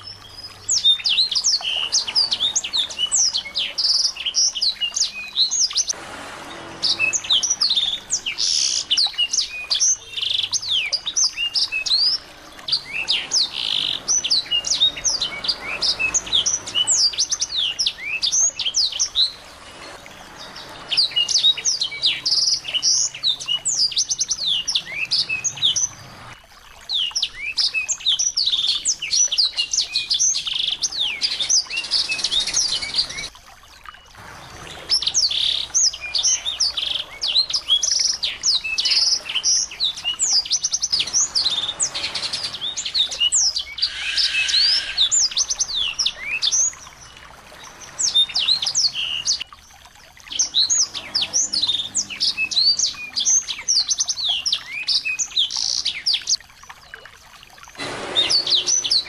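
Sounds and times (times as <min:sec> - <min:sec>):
songbird twittering: 0:34.3 - 0:56.4.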